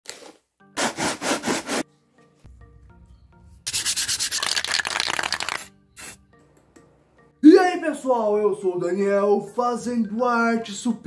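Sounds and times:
background music: 0.1s - 11.0s
sandpaper scraping cardboard: 0.8s - 1.8s.

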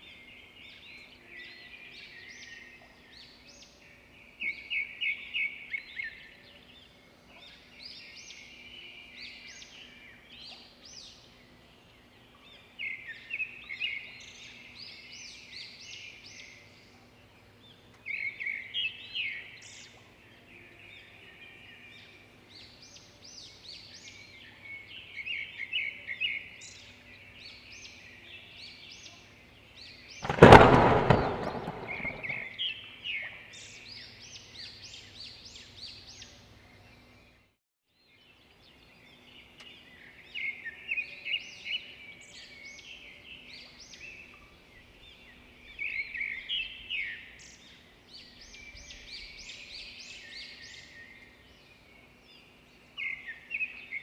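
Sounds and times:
loud bang: 30.2s - 32.5s.

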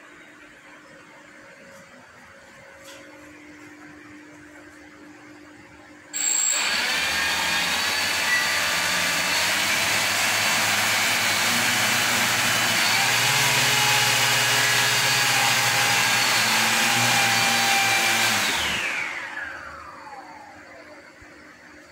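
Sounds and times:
electric thruster motors whining: 6.2s - 21.0s.

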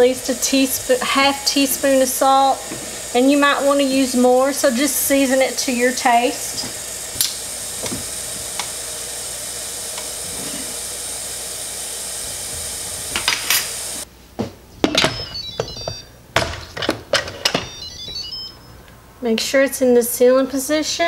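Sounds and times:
steady hiss: 0.0s - 14.1s
electronic chime falling tones: 15.2s - 16.1s, 17.5s - 18.8s.

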